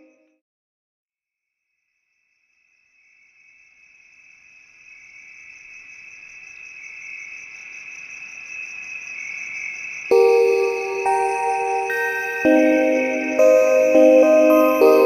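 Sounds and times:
bright chimes: 0:10.1 - 0:15.0
held chord: 0:10.1 - 0:15.0.

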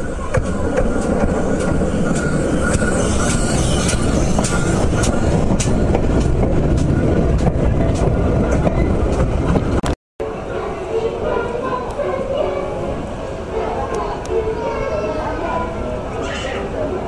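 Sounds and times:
wheels clicking over rails: 0:00.0 - 0:09.8
steam train rumbling past: 0:00.0 - 0:17.0.

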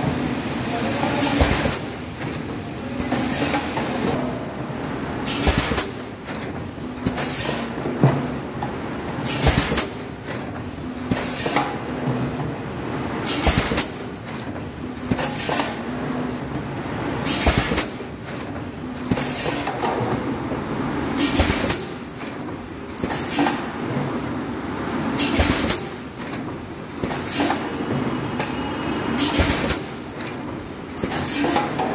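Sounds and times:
machine hiss bursts with knocks: 0:01.2 - 0:04.2, 0:05.2 - 0:08.3, 0:09.2 - 0:10.4, 0:13.2 - 0:14.2, 0:15.0 - 0:15.8, 0:17.2 - 0:18.4, 0:19.0 - 0:19.9, 0:21.1 - 0:22.4, 0:23.0 - 0:23.6, 0:25.2 - 0:26.4, 0:27.0 - 0:28.6, 0:29.2 - 0:30.4, 0:31.0 - 0:31.9.

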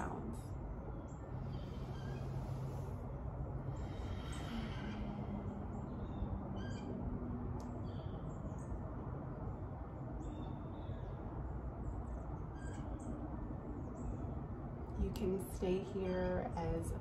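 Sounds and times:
birds chirping: 0:00.0 - 0:08.9
faint low hum: 0:00.0 - 0:17.0
outdoor background noise: 0:00.0 - 0:17.0.

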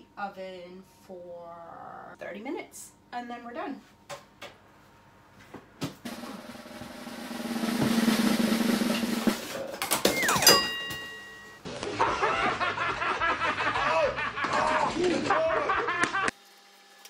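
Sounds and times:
drum roll: 0:06.0 - 0:10.7.

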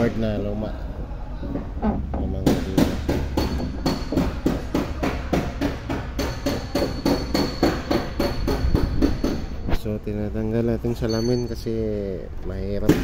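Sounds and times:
rapid hammering: 0:02.1 - 0:09.5.

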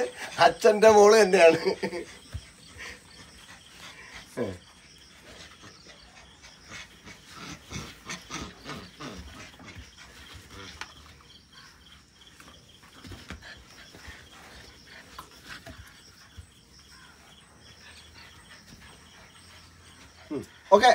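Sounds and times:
puppy play growls: 0:05.2 - 0:11.2.

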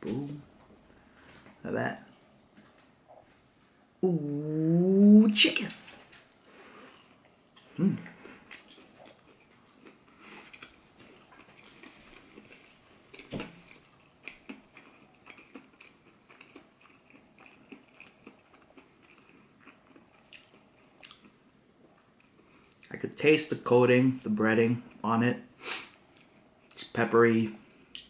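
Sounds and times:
person chewing food: 0:06.4 - 0:22.9.

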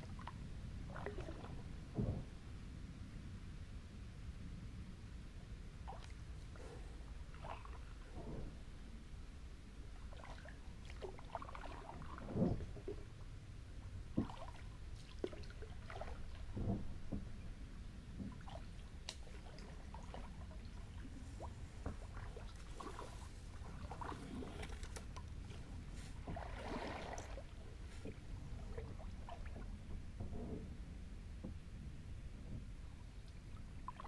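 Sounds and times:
water trickling around kayak: 0:00.0 - 0:02.4, 0:05.8 - 0:09.2, 0:09.8 - 0:34.0
louder water splashes: 0:26.3 - 0:27.5.

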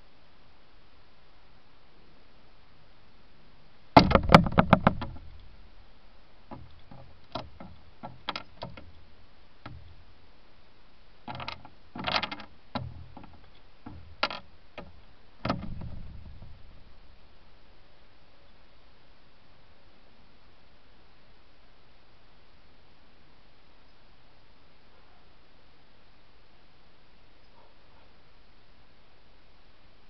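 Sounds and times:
beak tapping on glass: 0:04.0 - 0:05.5, 0:11.3 - 0:17.0
thump: 0:04.0 - 0:05.6, 0:06.5 - 0:09.0, 0:09.7 - 0:09.9, 0:11.3 - 0:17.1.

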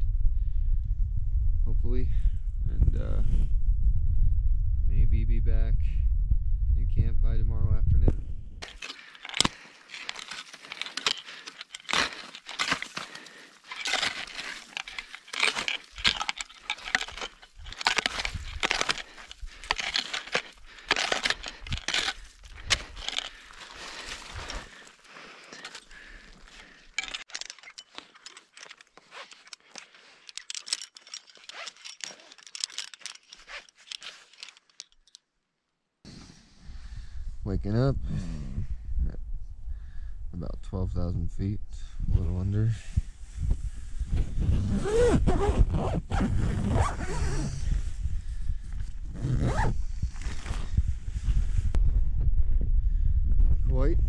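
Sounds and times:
low rumble: 0:00.0 - 0:08.6
crunching and scraping in snow: 0:08.6 - 0:30.2, 0:49.2 - 0:51.7
clothing and gear rustling: 0:08.6 - 0:35.2, 0:43.0 - 0:51.8.

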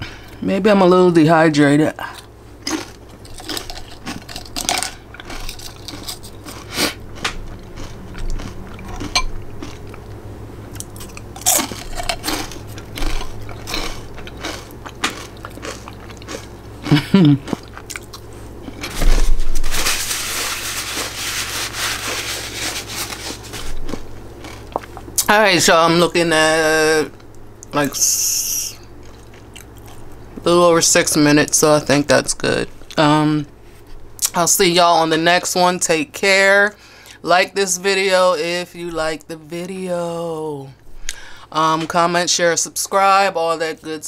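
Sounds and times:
person chewing crunchy food: 0:02.0 - 0:25.3, 0:28.9 - 0:30.4
steady noise: 0:18.4 - 0:28.9.

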